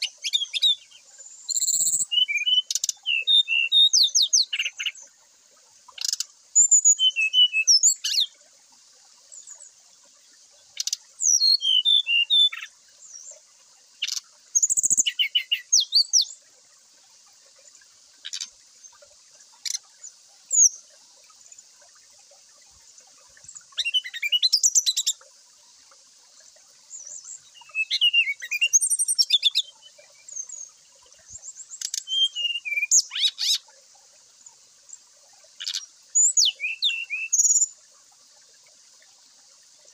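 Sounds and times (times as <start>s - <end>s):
bird singing trills and whistles: 0.0s - 5.1s, 6.0s - 8.3s, 10.8s - 13.3s, 14.0s - 16.3s, 20.5s - 20.8s, 23.5s - 25.2s, 26.9s - 33.6s, 35.6s - 37.7s
faint high hiss: 0.0s - 39.9s.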